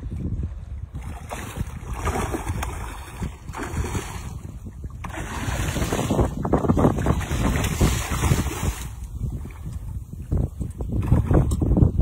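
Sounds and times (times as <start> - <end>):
wind buffeting microphone: 0.0 - 12.0
fish thrashing and splashing: 1.0 - 9.0.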